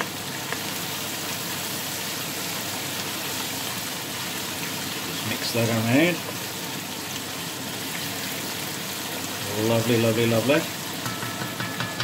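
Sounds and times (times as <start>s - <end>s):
food sizzling in oil: 0.0s - 12.0s
wooden spoon tap: 11.0s - 12.0s.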